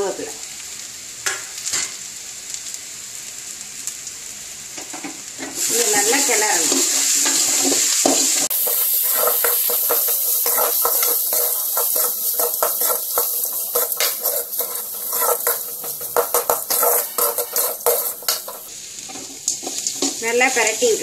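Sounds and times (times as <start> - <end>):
sizzle: 0.0 - 21.0
spoon scraping metal pan: 6.7 - 20.3
spoon clinking against pan: 8.5 - 18.7.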